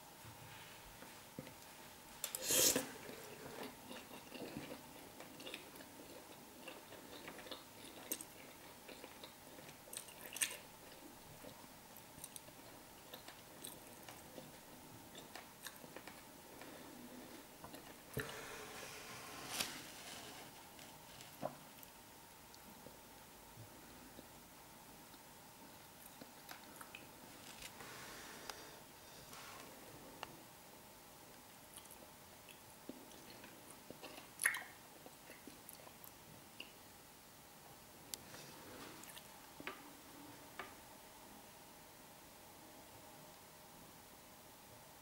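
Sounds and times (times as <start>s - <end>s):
person chewing food: 2.2s - 18.8s, 25.1s - 27.7s, 31.7s - 36.8s, 38.1s - 39.9s.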